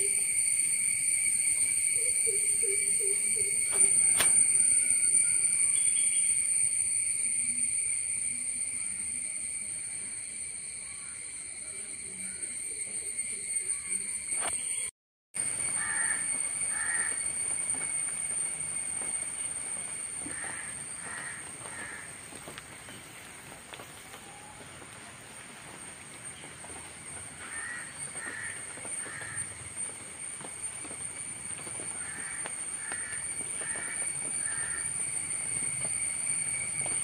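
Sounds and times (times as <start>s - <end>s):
bird calling: 2.0s - 6.3s, 15.5s - 23.2s, 26.4s - 30.0s.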